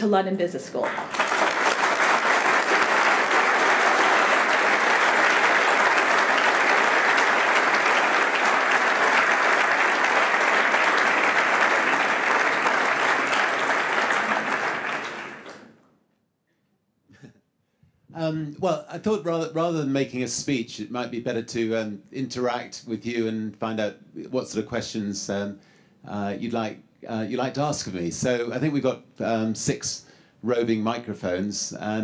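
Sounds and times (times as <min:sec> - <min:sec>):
audience applauding: 0:00.8 - 0:15.8.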